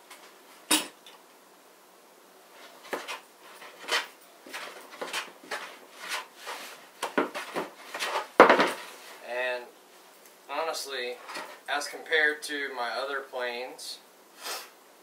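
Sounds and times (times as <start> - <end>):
knock: 8.4 - 8.8.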